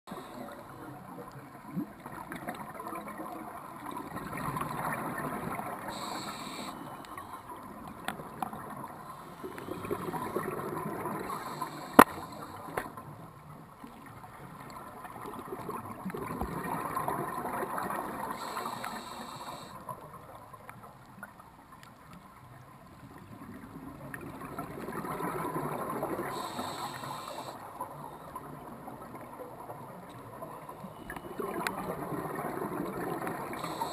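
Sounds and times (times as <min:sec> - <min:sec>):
regulator hissing inhalations: 0:00.1 - 0:00.8, 0:05.8 - 0:07.6, 0:09.0 - 0:10.4, 0:11.1 - 0:12.8, 0:18.3 - 0:19.8, 0:26.3 - 0:27.7, 0:33.5 - 0:33.9
exhaled air bubbling: 0:00.1 - 0:13.0, 0:23.2 - 0:33.9.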